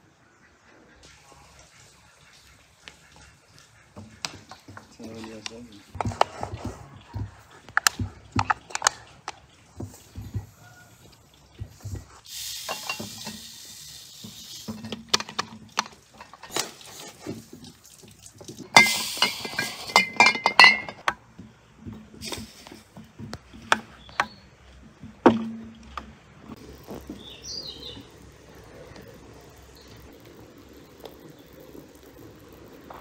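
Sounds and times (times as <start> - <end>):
sugar pouring hiss: 12.3 - 14.8, 18.7 - 20.0, 26.6 - 33.0
scoop clinking against glass: 18.8 - 21.0.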